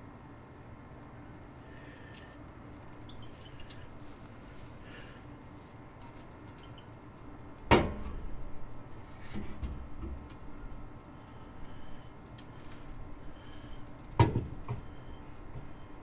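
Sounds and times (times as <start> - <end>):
sharp knocks of parts: 14.1 - 15.8.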